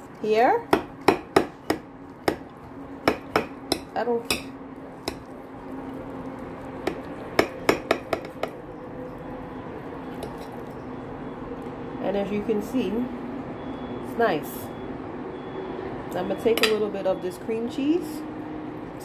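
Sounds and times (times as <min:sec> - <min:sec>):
knife and fork scraping plate: 0:10.1 - 0:10.6.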